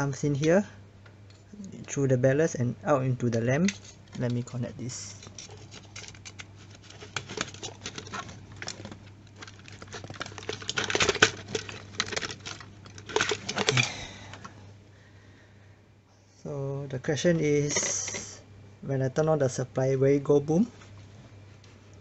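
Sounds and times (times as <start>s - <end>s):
hands handling wires and connectors: 3.3s - 14.6s, 17.7s - 18.4s.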